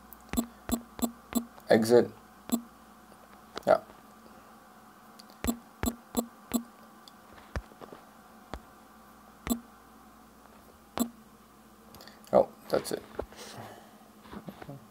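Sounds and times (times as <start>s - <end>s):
fingertips tapping touchscreen: 0.3s - 1.5s, 5.4s - 6.7s.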